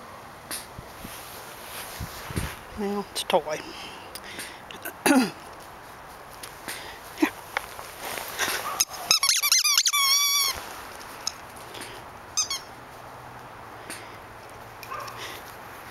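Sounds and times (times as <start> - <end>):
squeaky dog toy squeaking: 8.8 - 10.6, 12.4 - 12.8.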